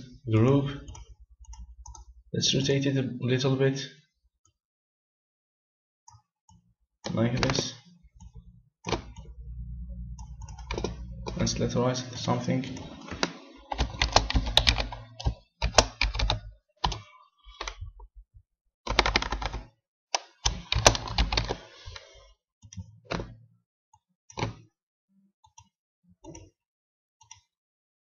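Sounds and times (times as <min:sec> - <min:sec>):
keyboard typing: 0:08.2 - 0:17.9, 0:18.9 - 0:19.7, 0:20.4 - 0:22.0.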